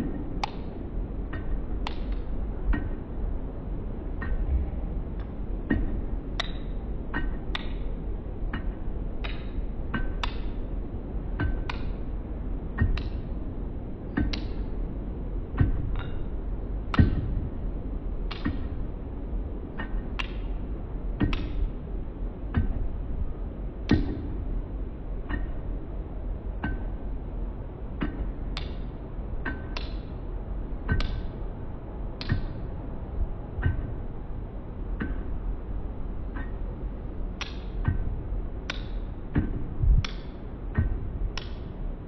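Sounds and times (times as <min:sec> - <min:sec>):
steady low rumble: 0:00.0 - 0:42.0.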